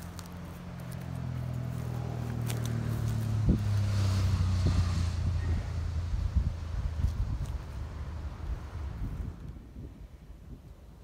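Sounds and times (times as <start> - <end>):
wind buffeting microphone: 2.8 - 11.0.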